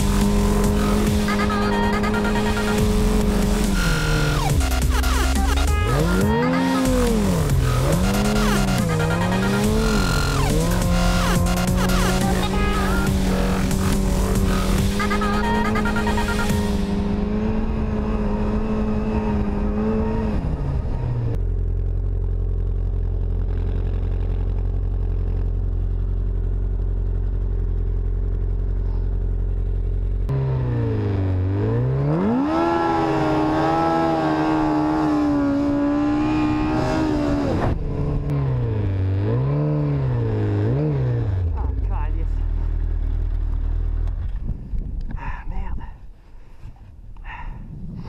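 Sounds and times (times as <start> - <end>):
snowmobile engine revving: 0.0 - 21.3, 30.3 - 42.6.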